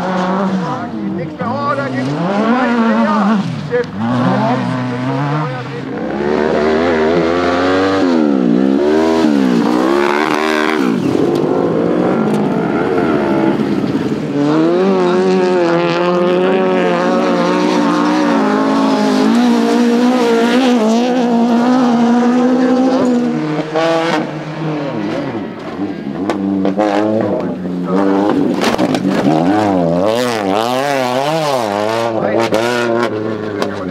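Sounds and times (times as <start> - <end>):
racing engines revving hard: 0.0 - 33.9.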